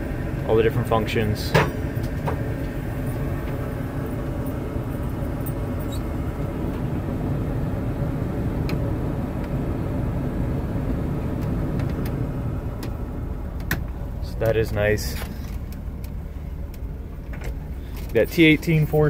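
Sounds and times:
engine rumbling: 0.0s - 19.0s.

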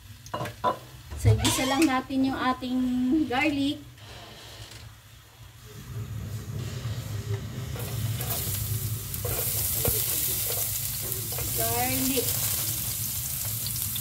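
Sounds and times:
garlic sizzling in oil: 7.6s - 14.0s.

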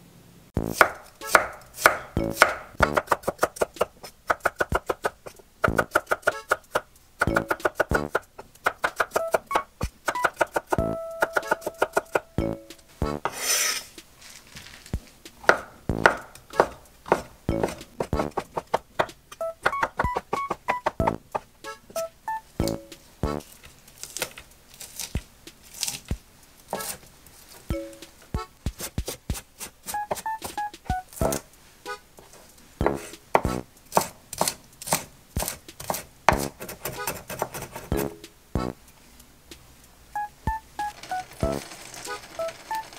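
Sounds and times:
knife chopping on wooden board: 0.6s - 12.3s, 15.4s - 21.5s, 26.7s - 27.0s, 28.4s - 30.6s, 32.8s - 38.1s.

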